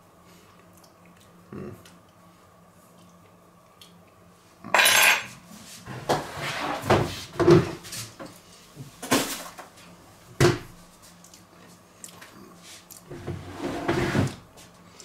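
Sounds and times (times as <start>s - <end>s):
crockery and cutlery clattering: 4.8s - 5.3s.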